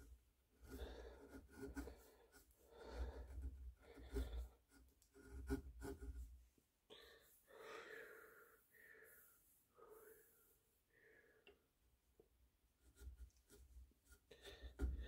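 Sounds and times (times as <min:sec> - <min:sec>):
gouge scraping wood: 0:00.0 - 0:06.4, 0:12.8 - 0:15.0
hand rubbing wood: 0:00.0 - 0:06.5, 0:12.8 - 0:15.0.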